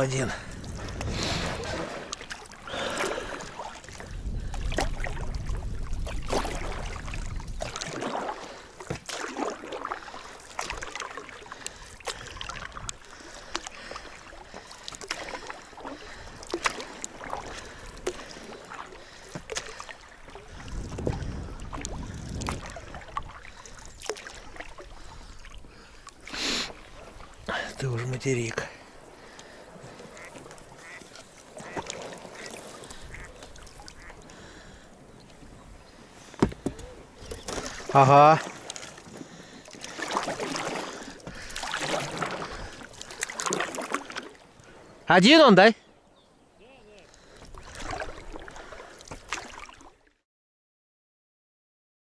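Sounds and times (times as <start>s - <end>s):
wind rumble on microphone: 0.0s - 2.0s, 4.0s - 7.8s, 20.5s - 23.4s
water splashing: 0.0s - 45.6s, 46.7s - 50.0s.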